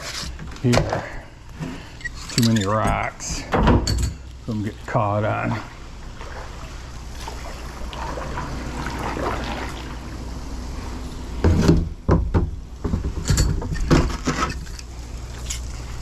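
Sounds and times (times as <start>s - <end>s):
knocks and clunks in kayak: 11.4s - 14.4s.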